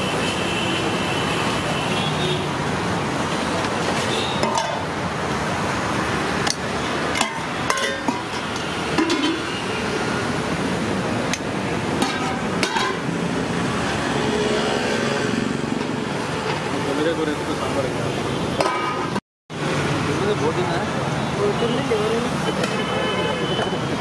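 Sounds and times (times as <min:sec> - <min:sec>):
roadside traffic noise: 0:00.0 - 0:24.0
metal pots and ladles clinking: 0:04.4 - 0:05.0, 0:06.4 - 0:09.6, 0:11.3 - 0:13.2, 0:18.6 - 0:19.2.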